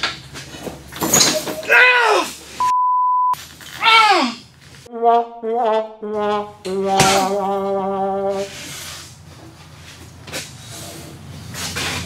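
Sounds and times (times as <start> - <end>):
sad trombone sound effect: 4.9 - 8.6.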